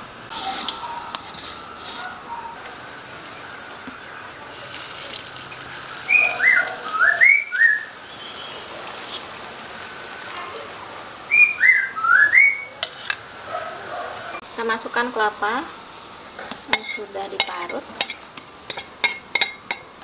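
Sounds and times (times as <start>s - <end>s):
songbird whistling: 6.1s - 8.6s, 11.3s - 12.8s.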